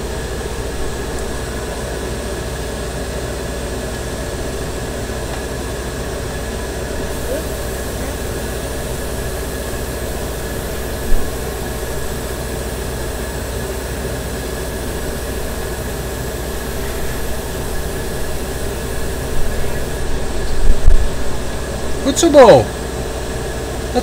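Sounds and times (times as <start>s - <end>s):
compressor humming: 0.0s - 24.0s
airbrush hissing: 7.0s - 20.7s.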